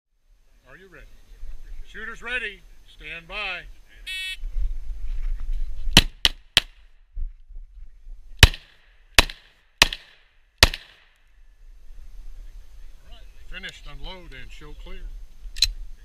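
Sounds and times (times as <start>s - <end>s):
pistol shots with echo: 8.4s - 11.1s.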